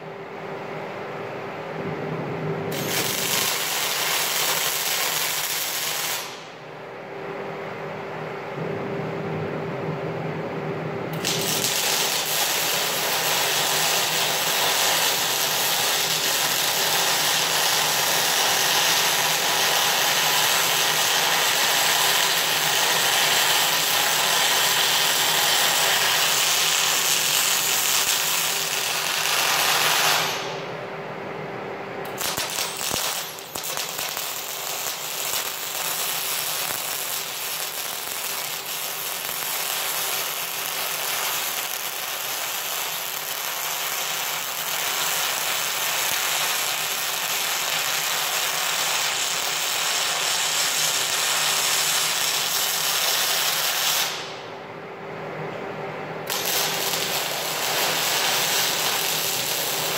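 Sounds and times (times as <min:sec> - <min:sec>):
steady hum: 0:00.0 - 0:42.2, 0:44.8 - 0:59.9
welding arc crackling: 0:02.7 - 0:06.5, 0:11.1 - 0:30.6, 0:32.1 - 0:54.4, 0:56.3 - 0:59.9.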